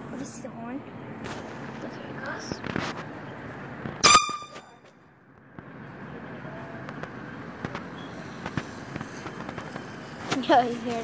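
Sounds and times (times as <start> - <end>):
handheld horn toot: 4.0 - 4.8.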